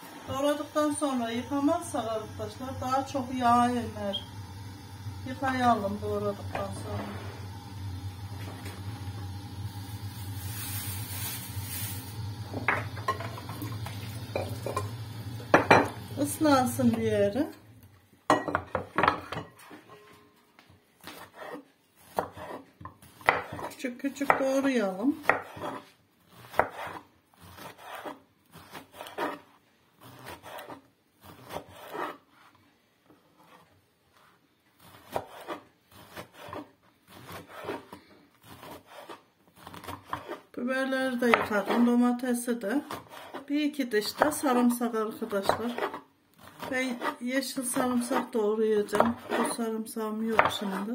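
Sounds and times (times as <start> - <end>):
tap water running into sink: 13.3 - 14.9
knife dicing on wooden board: 21.0 - 24.5, 25.2 - 29.4, 30.0 - 32.2, 34.8 - 40.4, 45.4 - 49.6.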